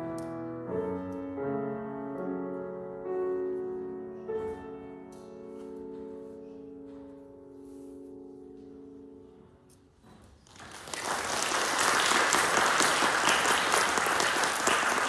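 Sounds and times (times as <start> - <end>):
piano chord: 0.0 - 10.2
audience applause: 10.4 - 15.0.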